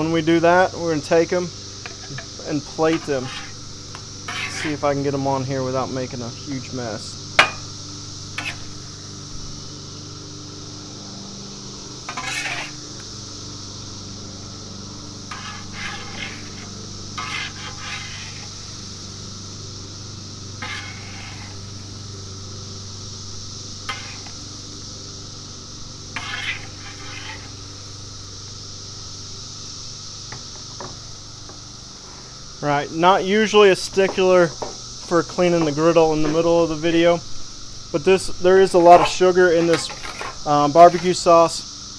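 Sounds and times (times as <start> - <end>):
cicadas droning: 0.0 - 41.9
metal spatula scraping griddle: 1.8 - 5.4, 7.4 - 7.7, 8.3 - 8.8, 12.0 - 13.0, 15.2 - 19.0, 20.5 - 21.9, 23.8 - 24.4, 26.1 - 27.8, 38.6 - 41.3.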